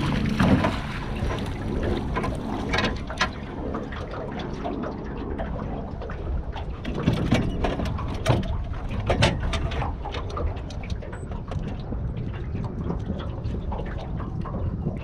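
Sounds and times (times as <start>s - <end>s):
fishing gear clattering in metal boat: 0.0s - 3.5s, 6.8s - 11.4s
steady low rumble: 0.0s - 15.0s.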